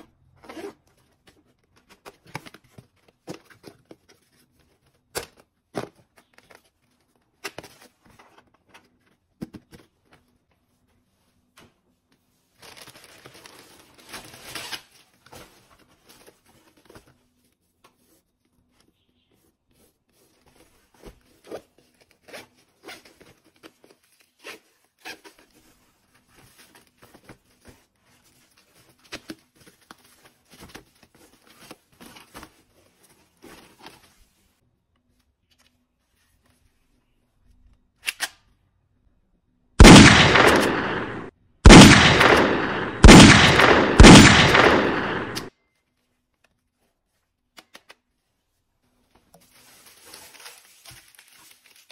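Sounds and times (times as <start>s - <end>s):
plastic packaging crinkling: 49.5s - 51.9s.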